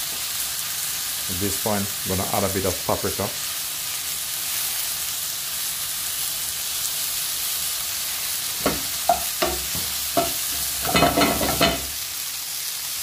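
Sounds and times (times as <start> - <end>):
mushrooms sizzling in a pan: 0.0 - 13.0
wooden spatula scraping a pan: 8.6 - 12.0.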